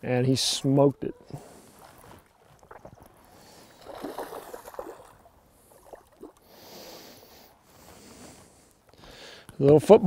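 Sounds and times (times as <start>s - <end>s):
fish splashing at water surface: 1.4s - 6.8s.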